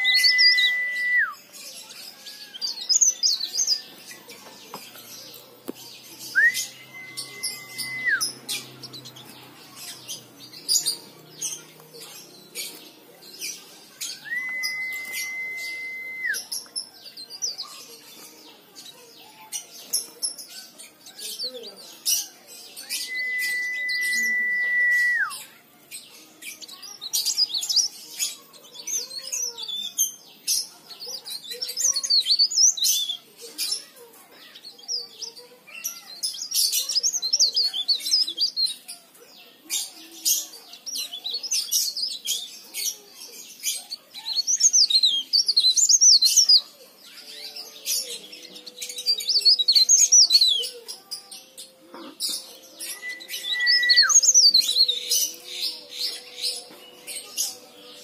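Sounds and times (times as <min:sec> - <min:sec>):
bird twittering: 0:06.3 - 0:08.4
high whistle: 0:06.4 - 0:08.2, 0:14.3 - 0:16.4, 0:23.0 - 0:25.3.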